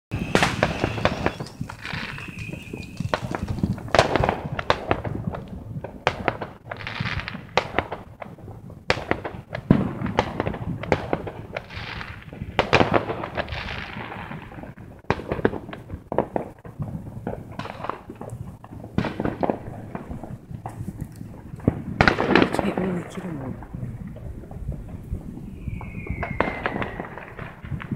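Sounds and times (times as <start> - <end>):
fireworks crackling and banging: 0.1 - 27.9.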